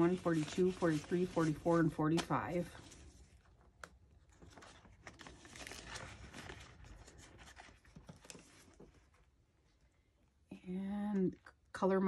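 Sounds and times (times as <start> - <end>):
paper bills rustling: 0.0 - 9.1.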